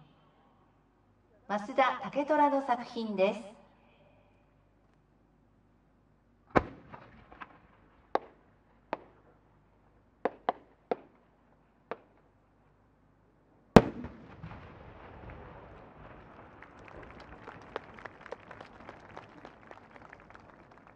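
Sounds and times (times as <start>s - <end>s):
firework shell bursting with rumble: 13.8s - 17.0s
firework effects cracking: 13.8s - 20.6s.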